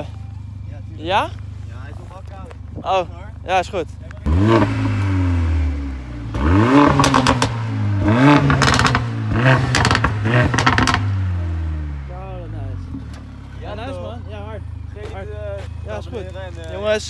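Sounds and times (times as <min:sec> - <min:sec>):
exhaust crackles and pops: 0:03.9 - 0:11.2
car engine revving: 0:04.2 - 0:15.8.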